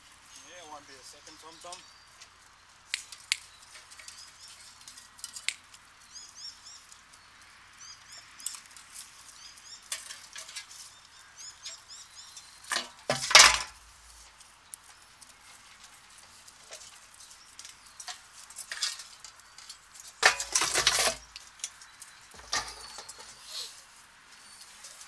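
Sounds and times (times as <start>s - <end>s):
bird chirping: 0.3s - 13.0s
metal clinks and knocks: 12.4s - 13.8s, 18.0s - 23.4s.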